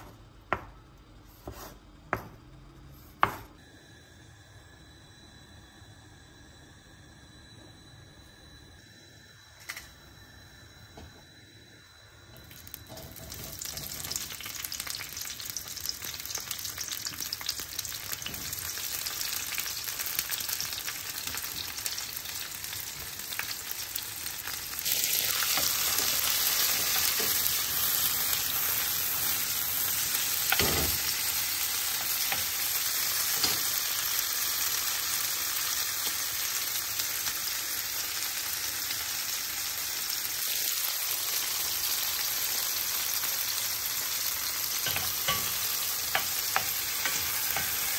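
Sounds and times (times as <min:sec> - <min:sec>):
food sizzling in a pan: 0:12.2 - 0:47.9.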